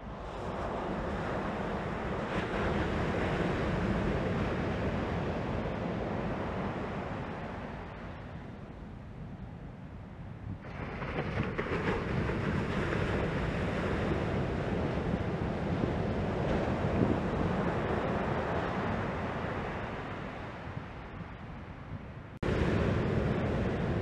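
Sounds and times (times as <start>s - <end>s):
wave breaking on beach: 22.4s - 24.0s.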